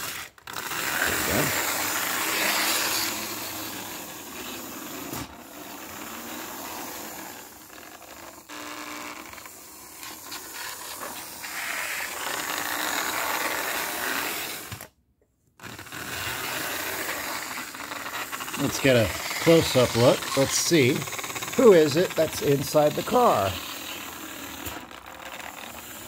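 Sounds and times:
toy trolley motor and wheels: 0.0 - 14.9, 15.6 - 26.0.

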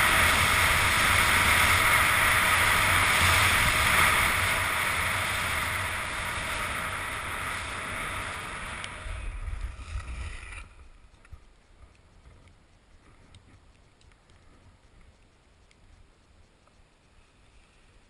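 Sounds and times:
skis scraping over snow: 0.0 - 11.1.

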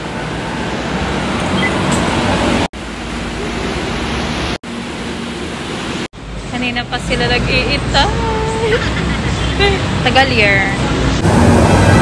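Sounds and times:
rushing noise of rail station: 0.0 - 12.0.

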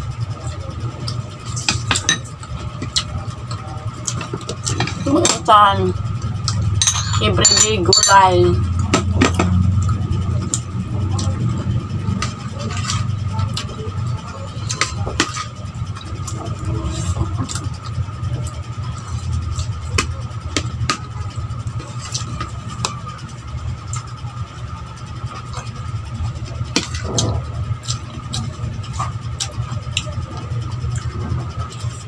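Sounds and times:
steady low hum: 0.0 - 32.0
chewing: 25.3 - 32.0.

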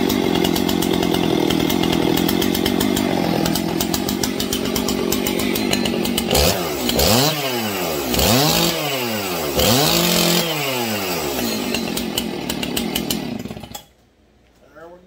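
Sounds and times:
chainsaw idling and revving: 0.0 - 13.9.

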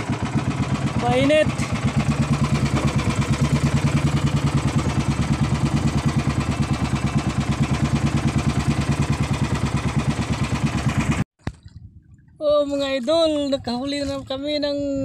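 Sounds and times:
boat engine chugging: 0.0 - 11.3.

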